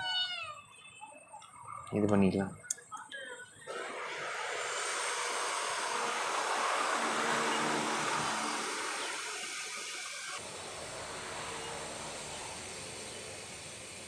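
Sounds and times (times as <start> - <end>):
steady rushing noise: 4.6 - 14.0
faint hum: 6.0 - 14.0.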